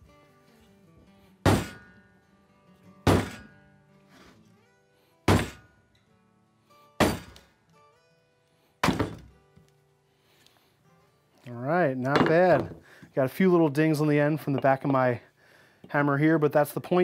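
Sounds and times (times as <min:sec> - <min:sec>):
wooden mallet striking hatchet: 0:01.4 - 0:02.0, 0:03.0 - 0:03.6, 0:05.3 - 0:05.7, 0:07.0 - 0:07.5, 0:08.8 - 0:09.4.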